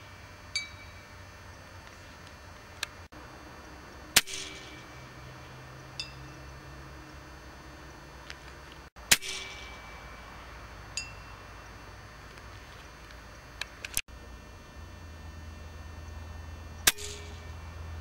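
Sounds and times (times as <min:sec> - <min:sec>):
small metallic ping: 0:00.5 - 0:01.1, 0:06.0 - 0:06.4, 0:10.9 - 0:11.4, 0:16.8 - 0:17.6
air rifle firing: 0:04.1 - 0:05.0, 0:09.0 - 0:10.2, 0:16.8 - 0:17.5.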